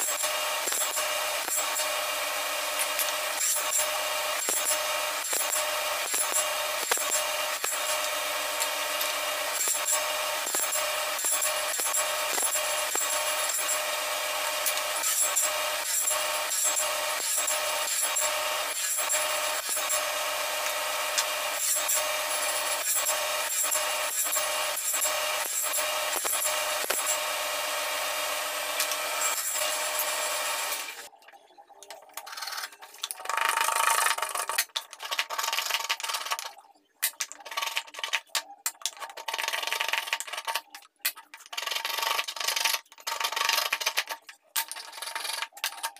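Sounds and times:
power saw cutting wood: 0:00.0 - 0:31.1.

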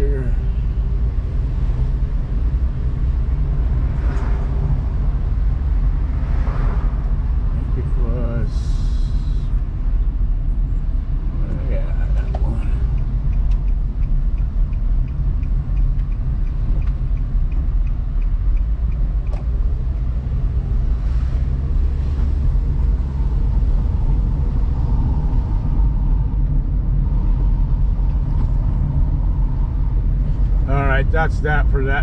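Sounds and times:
car engine and tyre noise: 0:00.0 - 0:32.0
light regular ticking: 0:11.4 - 0:20.6.

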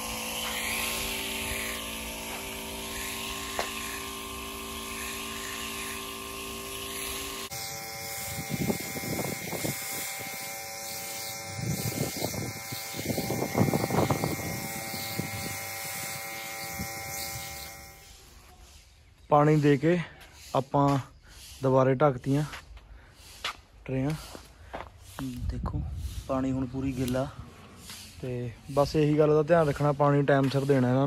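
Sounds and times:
spray pump motor buzzing: 0:00.0 - 0:18.4.

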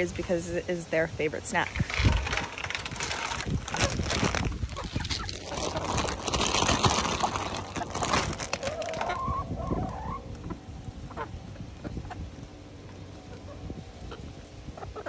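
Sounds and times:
chickens pecking clicks: 0:05.0 - 0:09.4.

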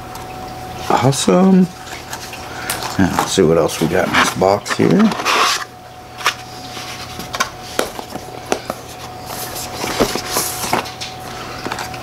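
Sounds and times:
cardboard and paper rustling: 0:03.0 - 0:12.0.

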